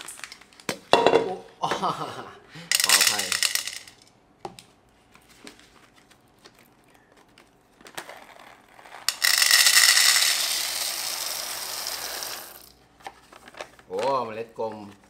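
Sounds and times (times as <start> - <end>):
coffee beans pouring into bowl: 2.7 - 4.0, 8.9 - 12.8.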